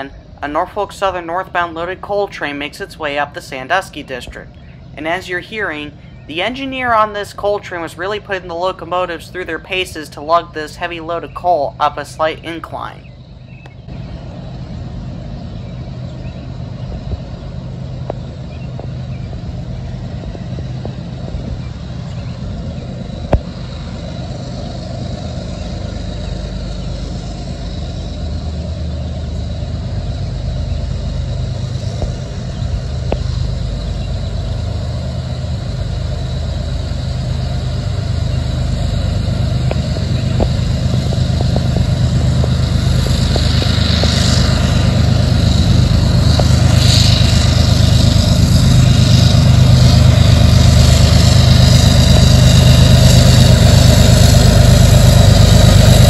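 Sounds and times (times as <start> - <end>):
diesel locomotive engine drone: 0.0 - 56.0.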